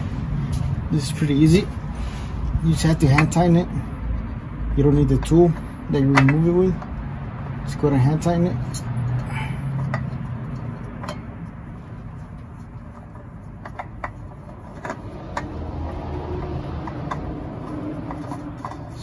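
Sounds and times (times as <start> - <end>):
steady low rumble: 0.0 - 19.0
oil filter clicks and taps: 5.0 - 7.3, 8.7 - 19.0.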